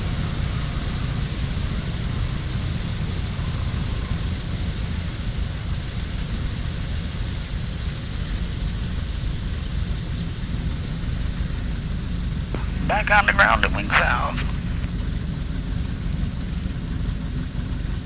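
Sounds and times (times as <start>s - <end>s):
airplane engine low rumble: 0.0s - 18.0s.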